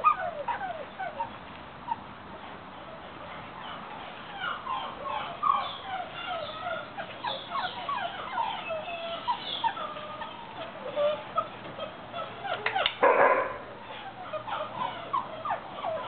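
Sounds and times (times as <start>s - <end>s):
puppies whimpering and squealing: 0.0s - 16.0s.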